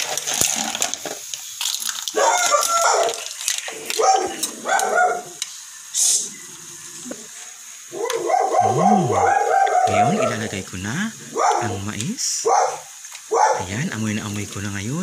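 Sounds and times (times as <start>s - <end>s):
seafood sizzling: 0.0s - 15.0s
dogs barking: 2.1s - 5.4s, 7.9s - 10.5s, 11.2s - 13.8s.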